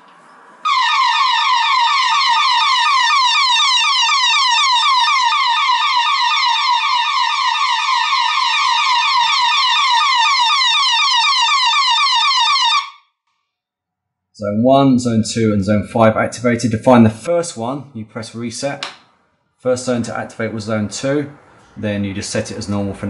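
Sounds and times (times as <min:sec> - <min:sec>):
alarm siren fast warbling tone: 0:00.6 - 0:13.1.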